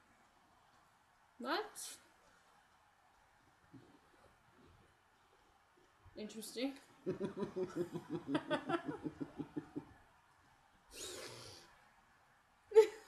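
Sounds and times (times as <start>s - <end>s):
laughter: 7.1s - 9.9s, 12.8s - 13.0s.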